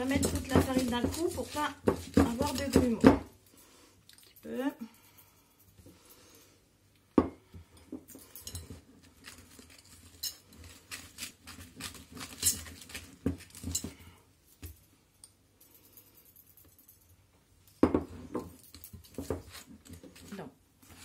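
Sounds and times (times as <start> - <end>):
whisk scraping glass bowl: 0.0 - 3.0.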